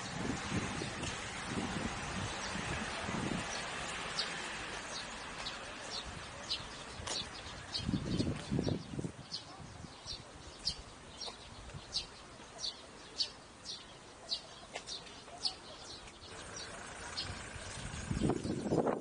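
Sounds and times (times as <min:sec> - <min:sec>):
small bird chirping: 0:03.4 - 0:19.0.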